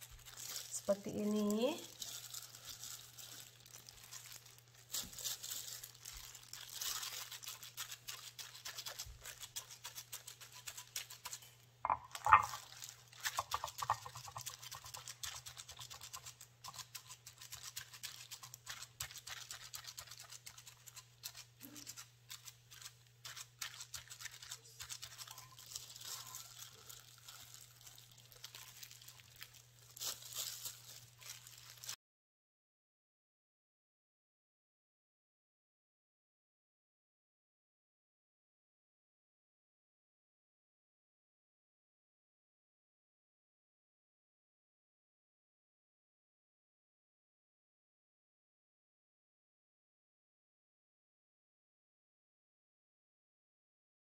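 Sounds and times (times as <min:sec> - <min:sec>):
dough scratching and clicking on lids: 0:00.0 - 0:31.5.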